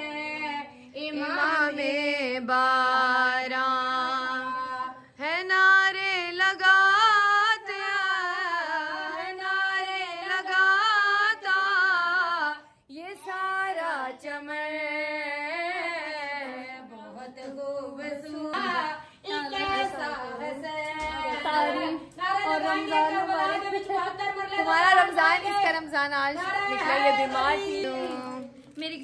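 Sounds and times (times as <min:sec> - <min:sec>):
woman singing devotional song: 0:00.0 - 0:29.0.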